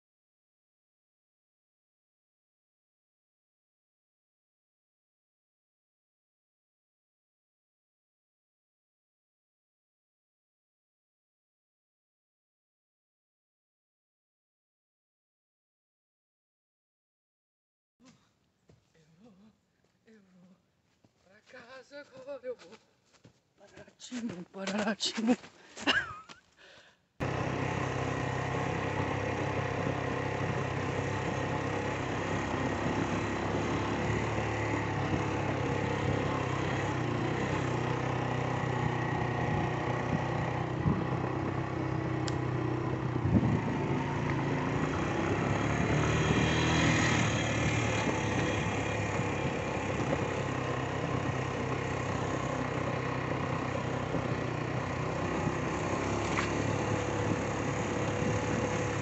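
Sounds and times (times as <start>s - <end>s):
motor engine humming: 27.2s - 59.0s.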